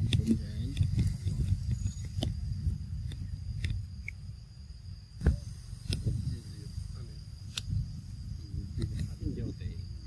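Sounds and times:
high-pitched insect drone: 0.0 - 10.0
sharp clicks: 7.5 - 7.7.

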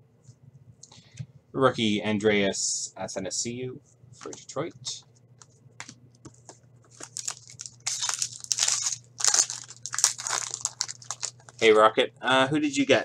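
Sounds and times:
foil wrapper tearing and crinkling: 7.0 - 11.7.

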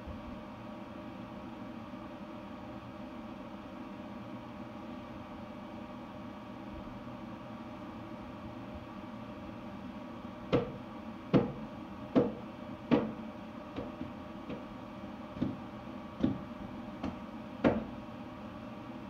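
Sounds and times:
steady background hum: 0.0 - 19.0
sharp knocks: 10.5 - 13.2, 16.2 - 17.9.

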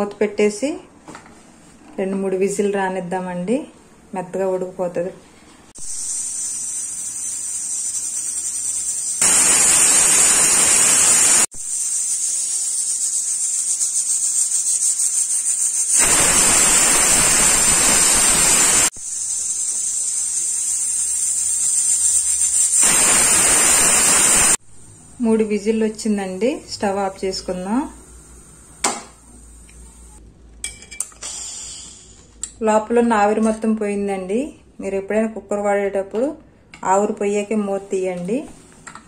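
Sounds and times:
steam hissing from vent: 5.8 - 30.2, 31.2 - 32.2
pressure cooker whistle: 5.9 - 13.8, 15.9 - 24.6.

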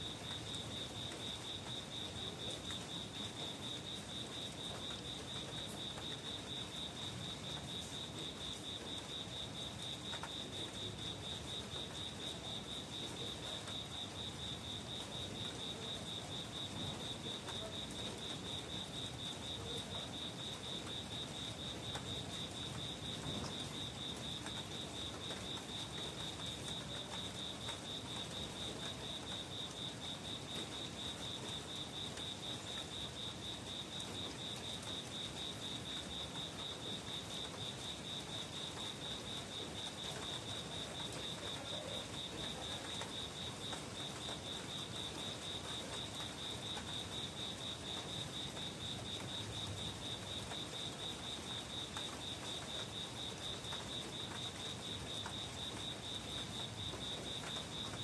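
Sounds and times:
cricket chirping: 0.0 - 58.0.

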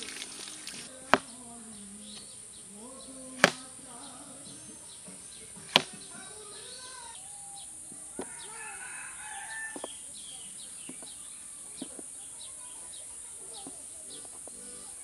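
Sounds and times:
chickens clucking: 0.0 - 15.0
blade chopping bamboo: 3.4 - 3.8, 5.7 - 6.1.

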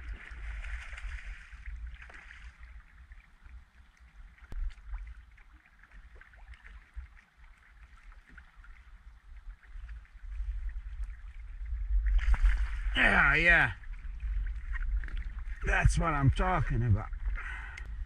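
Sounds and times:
water sloshing: 0.0 - 16.0
wind rumble on microphone: 9.0 - 18.0.

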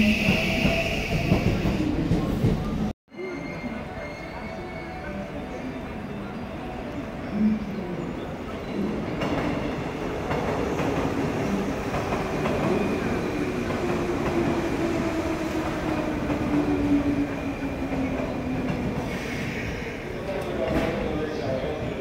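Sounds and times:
electric train rumbling: 0.0 - 2.9.

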